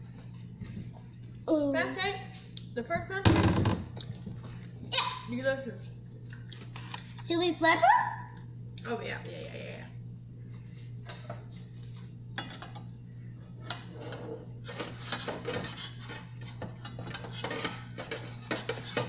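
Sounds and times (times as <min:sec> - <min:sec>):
steady low hum: 0:00.0 - 0:19.0
spatula scraping frying pan: 0:13.7 - 0:19.0.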